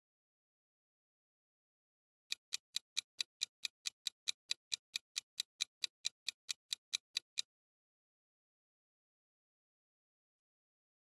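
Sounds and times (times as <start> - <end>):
sharp clock-like ticks: 2.3 - 7.5.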